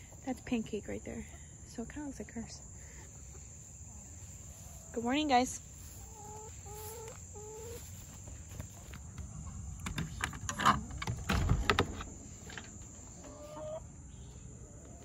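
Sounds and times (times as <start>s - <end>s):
hens calling: 2.8s - 11.2s, 11.8s - 15.0s
door swinging open: 9.7s - 13.4s
metal latch clicking open: 9.8s - 12.8s.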